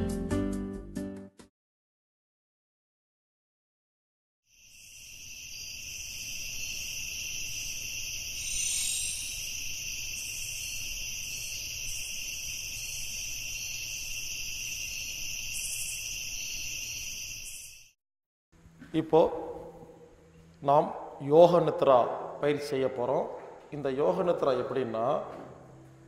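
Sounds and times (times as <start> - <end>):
high-pitched insect trilling: 4.5 - 18.0.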